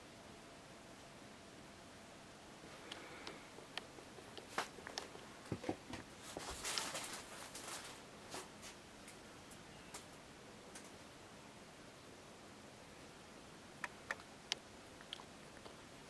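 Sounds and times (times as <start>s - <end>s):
short rustle: 6.0s - 8.8s
faint clicks: 13.8s - 15.8s.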